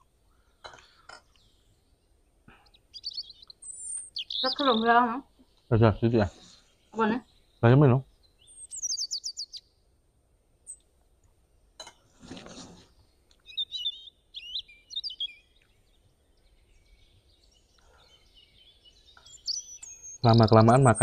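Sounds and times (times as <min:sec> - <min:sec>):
small birds chirping: 0:00.0 - 0:09.9, 0:10.6 - 0:21.0
brief rustle: 0:12.1 - 0:13.0.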